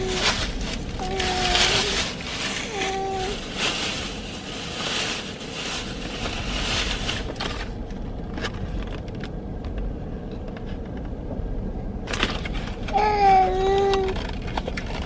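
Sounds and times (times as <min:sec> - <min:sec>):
plastic food packaging rustling: 0:00.0 - 0:09.1, 0:12.1 - 0:15.0
low hum inside car: 0:00.0 - 0:15.0.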